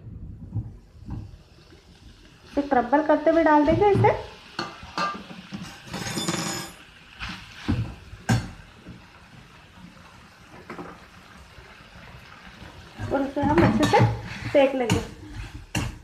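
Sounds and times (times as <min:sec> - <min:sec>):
metal spatula scraping a pan: 0:13.0 - 0:16.0.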